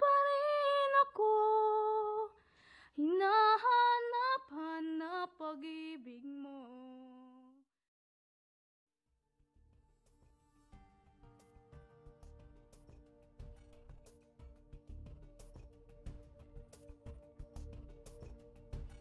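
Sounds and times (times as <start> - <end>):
woman singing unaccompanied: 0.0 - 7.6.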